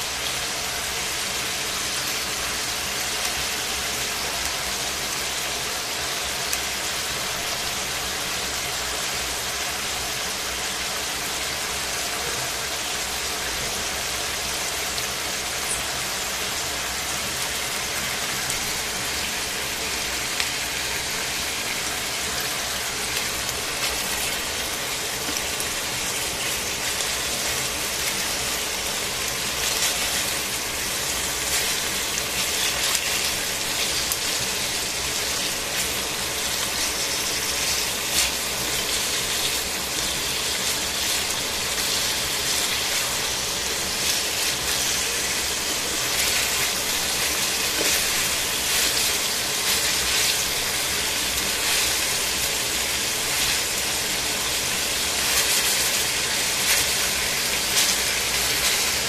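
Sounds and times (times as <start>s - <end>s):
chicken sizzling in oil: 0.0s - 59.0s
tongs clicking and scraping: 25.2s - 34.5s, 43.9s - 52.6s, 55.0s - 59.0s.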